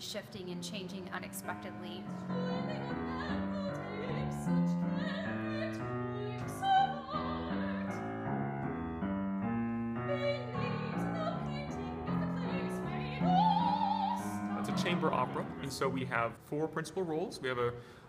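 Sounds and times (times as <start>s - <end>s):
grand piano playing: 0.0s - 16.5s
operatic voice singing: 12.0s - 16.2s.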